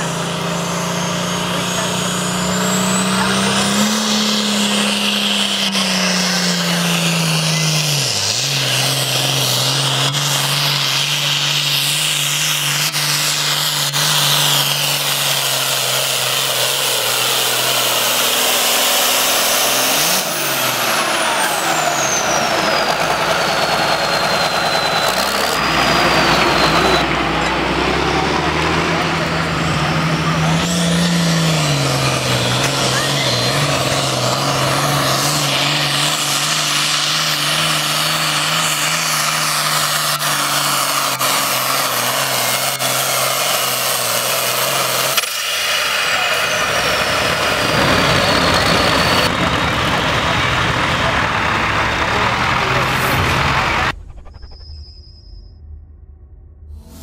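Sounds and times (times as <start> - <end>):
diesel tractor engine under load: 0.0 - 54.3
high whistle sliding down: 21.1 - 27.3, 53.0 - 56.1.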